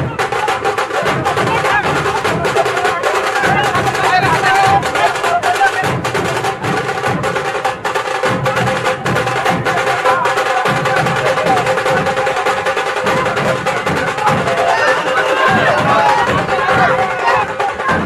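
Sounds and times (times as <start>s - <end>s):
fast loud drumming: 0.0s - 18.0s
steady held tone: 14.4s - 17.2s.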